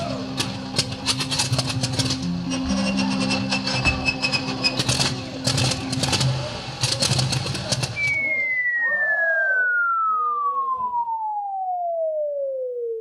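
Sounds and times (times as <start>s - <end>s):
falling whistle: 8.0s - 13.0s.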